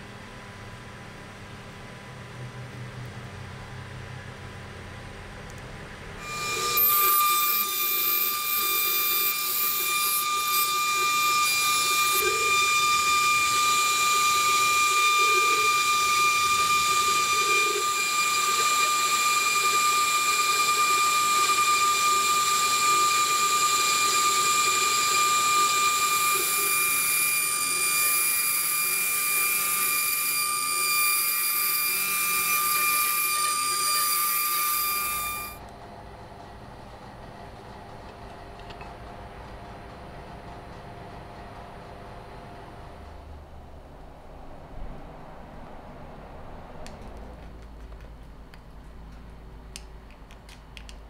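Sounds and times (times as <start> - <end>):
milling spindle cutting metal: 6.2 - 35.6.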